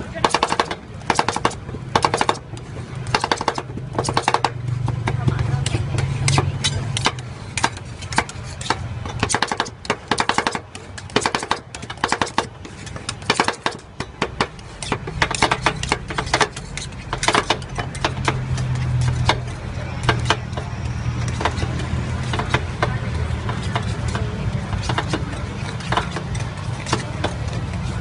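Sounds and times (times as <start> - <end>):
metal spatulas chopping ice cream: 0.0 - 28.0.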